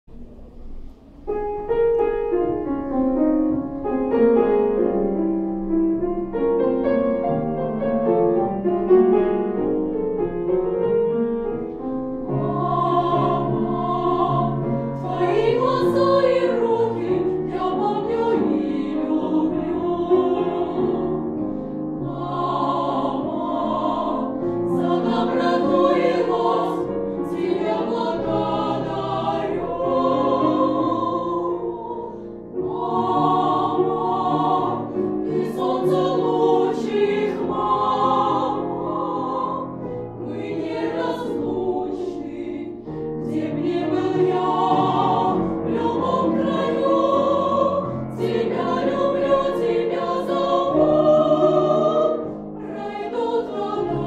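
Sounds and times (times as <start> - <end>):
piano accompaniment: 0.0 - 54.0
girls' choir singing: 12.2 - 54.0.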